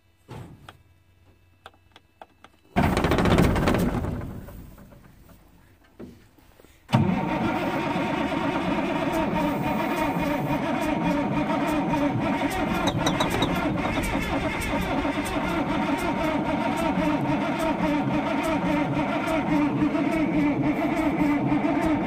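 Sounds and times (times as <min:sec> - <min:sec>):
starter cranking diesel engine: 0:06.9 - 0:22.0.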